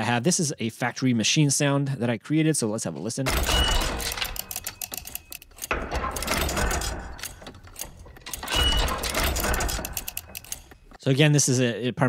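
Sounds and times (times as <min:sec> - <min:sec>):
mechanical clicking and clatter: 0:03.3 - 0:11.0.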